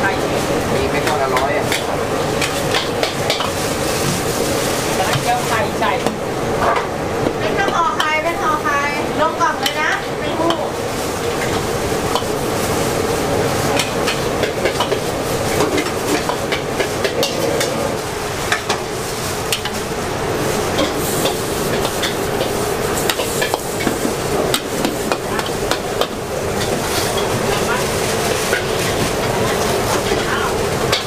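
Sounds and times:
food sizzling: 0.0s - 31.0s
metal spatula scraping a wok: 26.5s - 30.5s.

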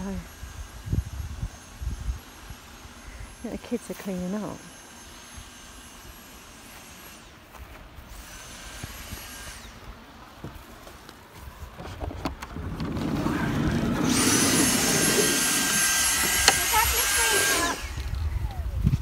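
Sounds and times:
handheld vacuum cleaner motor: 12.6s - 18.5s.

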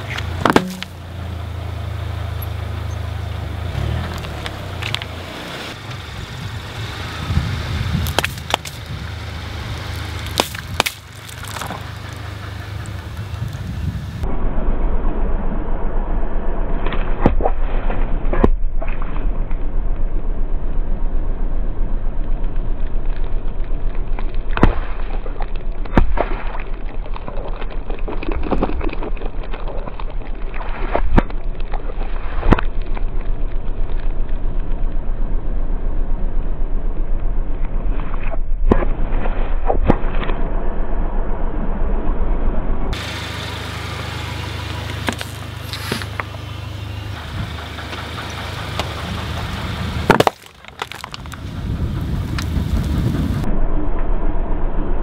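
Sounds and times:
car engine idling: 0.0s - 14.2s, 42.9s - 53.5s
tyre crushing plastic bottles: 44.9s - 46.3s, 50.1s - 51.4s.

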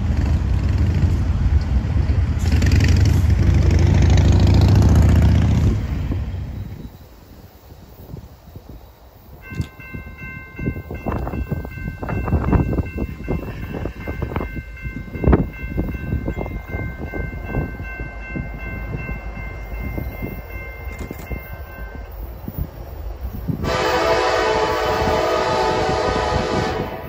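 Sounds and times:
distant locomotive air horn: 23.5s - 27.0s.

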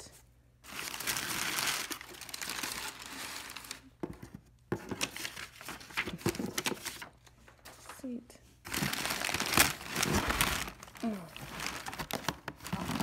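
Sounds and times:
packing paper crumpling: 0.6s - 3.9s, 8.7s - 13.0s.

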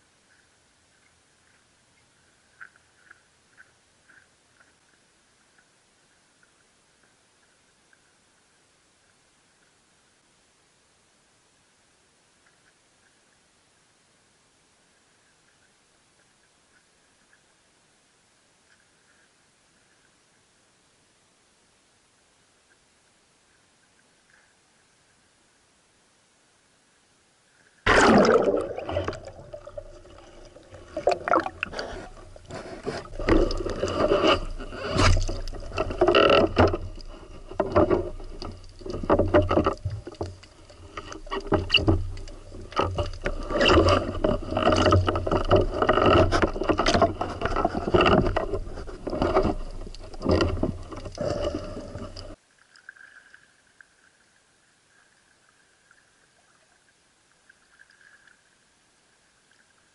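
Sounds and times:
splash into water: 27.9s - 30.1s
muffled knocks underwater: 27.9s - 52.4s
water sloshing and rushing: 27.9s - 52.4s.

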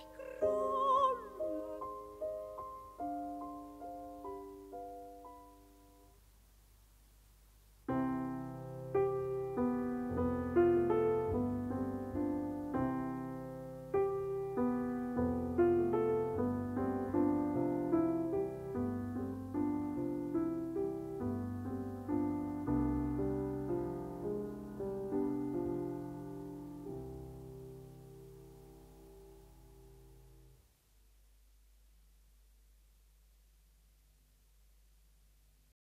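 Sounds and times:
solo piano playing: 0.0s - 6.1s, 7.9s - 30.3s.

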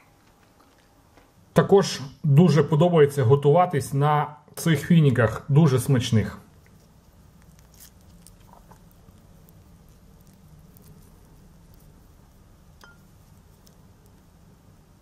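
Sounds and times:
low steady hum: 0.0s - 15.0s
fingers pulling dates apart: 6.5s - 14.4s.

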